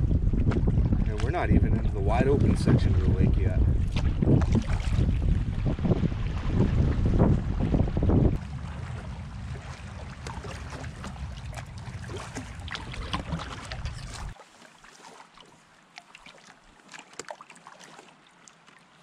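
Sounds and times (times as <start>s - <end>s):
wind rumble on microphone: 0.0s - 14.4s
water dripping and lapping: 0.3s - 19.0s.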